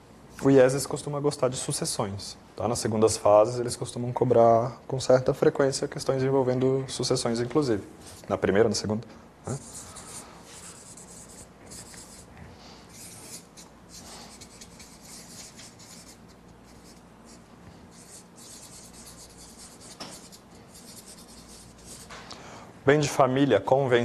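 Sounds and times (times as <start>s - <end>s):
marker pen scratching on paper: 9.6s - 12.3s, 12.9s - 22.1s.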